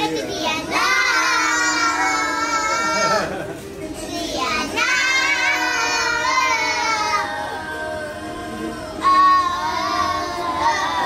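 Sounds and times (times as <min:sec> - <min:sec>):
young children singing: 0:00.0 - 0:11.0.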